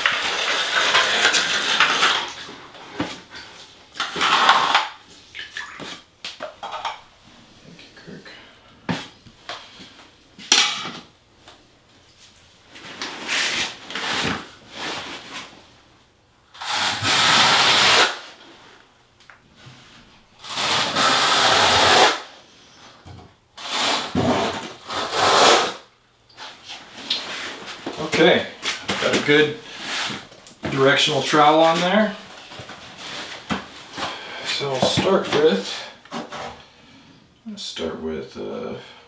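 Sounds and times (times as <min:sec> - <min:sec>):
trowel scraping mortar: 0:00.0 - 0:02.5, 0:23.6 - 0:25.8.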